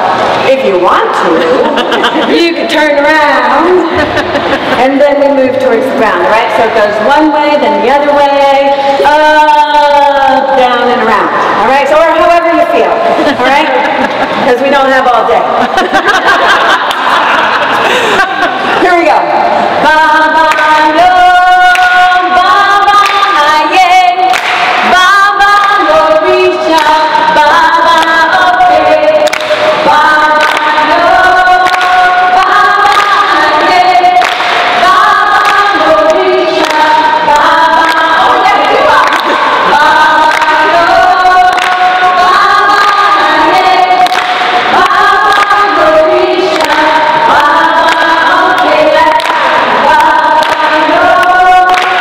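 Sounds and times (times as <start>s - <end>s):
group singing in unison: 16.0s - 52.0s.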